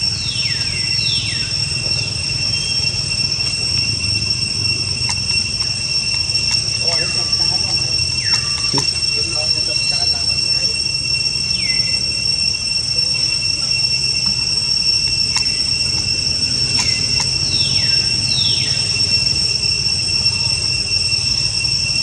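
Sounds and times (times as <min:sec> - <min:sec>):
insects droning: 0:00.0 - 0:22.0
faint clicks: 0:15.3 - 0:17.5.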